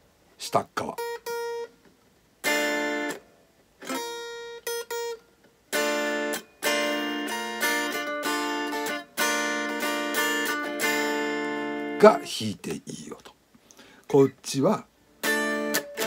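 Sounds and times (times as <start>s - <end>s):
high guitar notes picked: 1.0s - 1.8s, 2.4s - 12.4s, 15.2s - 16.0s
clean electric guitar chords: 3.9s - 12.3s, 15.2s - 16.0s.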